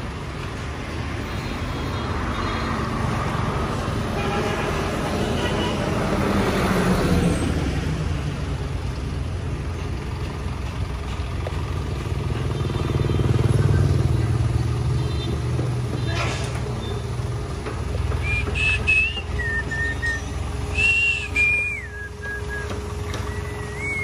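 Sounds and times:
dump truck passing: 2.1 - 24.0
diesel truck engine rumble: 4.8 - 24.0.

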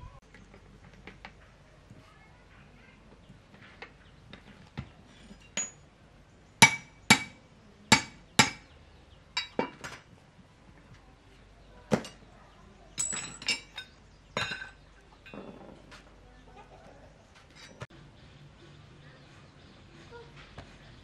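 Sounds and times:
metal-on-metal knocks ringing: 5.6 - 5.8, 9.4 - 10.0.

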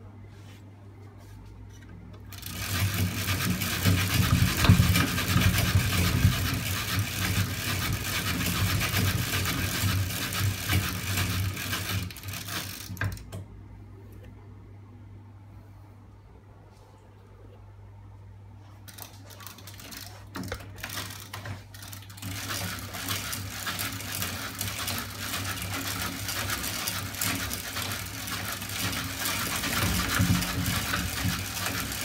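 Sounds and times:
steady low hum: 0.0 - 32.0
fast mechanical clatter: 2.2 - 13.4, 18.9 - 32.0.

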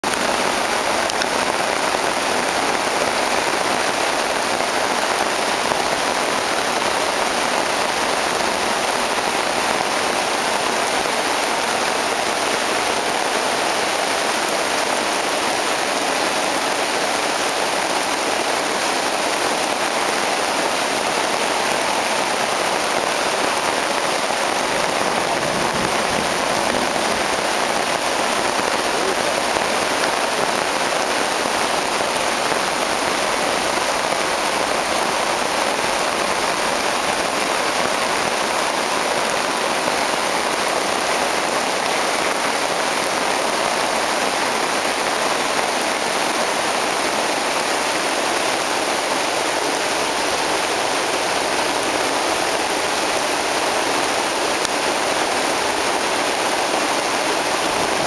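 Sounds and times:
rain pattering on a tarp: 0.0 - 58.0.

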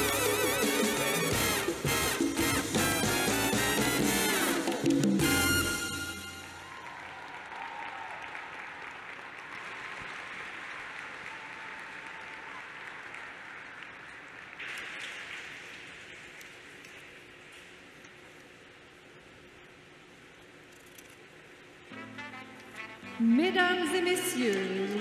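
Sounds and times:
audience applauding: 0.0 - 16.8.

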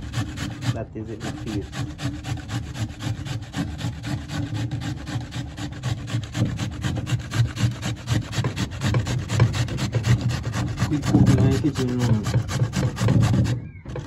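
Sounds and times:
pumpkin grating on metal grater: 0.0 - 14.0.

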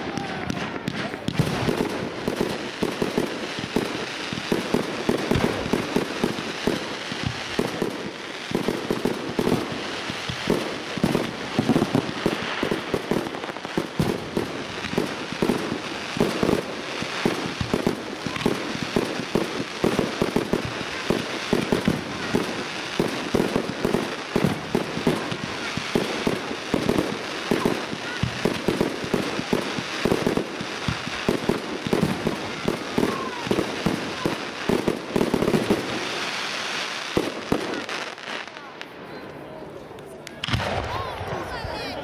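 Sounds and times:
fireworks bursting and crackling: 0.0 - 42.0.

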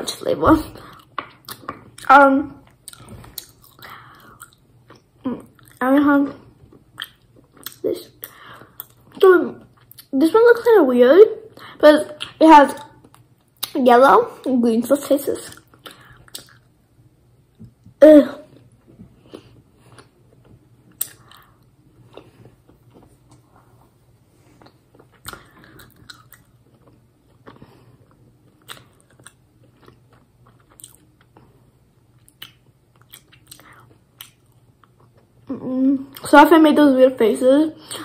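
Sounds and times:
faint low hum: 0.0 - 38.0
chewing with wet mouth clicks: 6.8 - 10.1, 15.5 - 16.7, 24.6 - 27.7, 28.5 - 31.4, 32.1 - 35.3.

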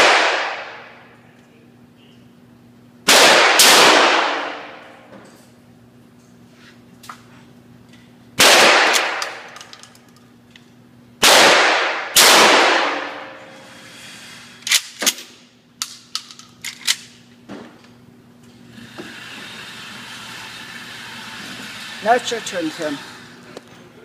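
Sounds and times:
shotgun shots echoing indoors: 0.0 - 1.0, 3.0 - 5.0, 8.4 - 9.6, 11.2 - 13.4.

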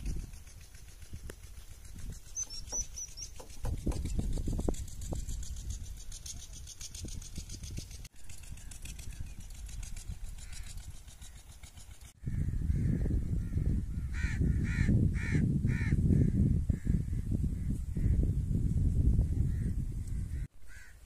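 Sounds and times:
bird calling: 1.8 - 4.4, 8.3 - 15.4, 19.5 - 21.0.

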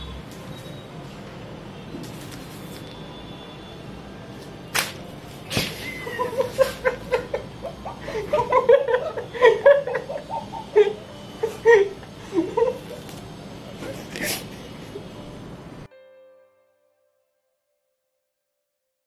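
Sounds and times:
person laughing hard: 5.5 - 13.1.

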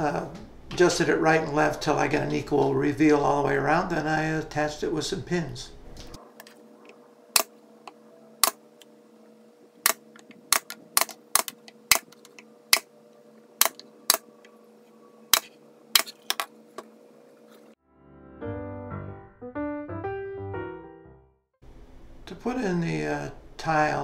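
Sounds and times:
faint steady hum: 0.0 - 17.8, 21.6 - 24.0
pneumatic pin nailer firing: 9.8 - 12.9, 13.6 - 14.2, 15.3 - 16.4.

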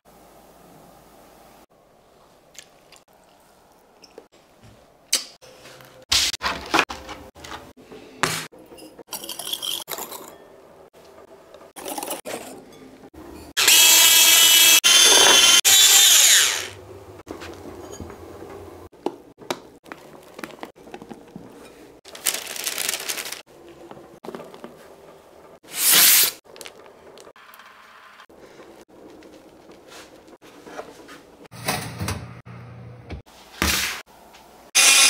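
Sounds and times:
electric hand mixer whipping: 13.6 - 16.8.

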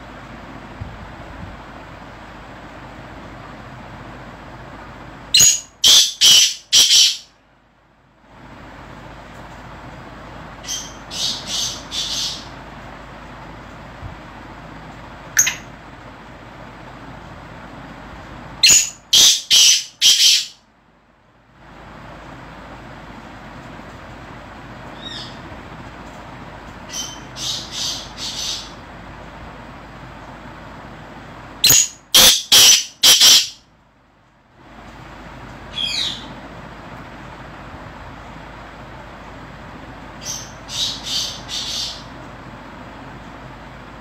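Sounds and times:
harsh bird call: 5.4 - 7.3, 18.6 - 20.6, 31.6 - 33.6.

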